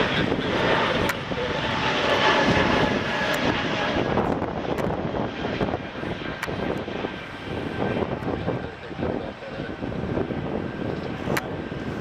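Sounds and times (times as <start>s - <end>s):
airliner engines rushing: 0.0s - 12.0s.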